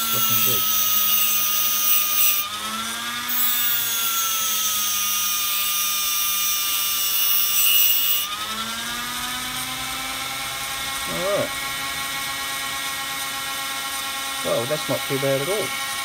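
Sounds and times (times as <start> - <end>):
rotary tool whining: 0.0 - 16.0.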